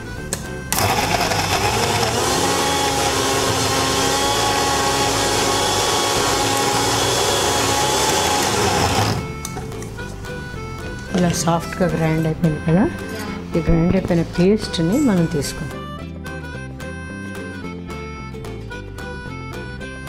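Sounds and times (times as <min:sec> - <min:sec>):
mixer grinder whining: 0:00.7 - 0:09.4.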